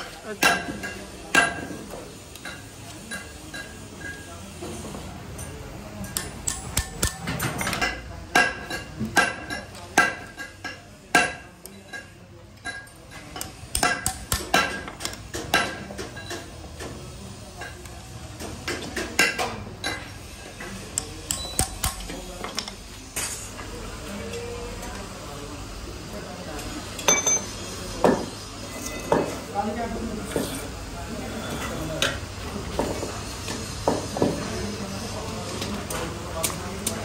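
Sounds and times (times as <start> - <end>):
hammer tapping metal punch: 20.9 - 22.7.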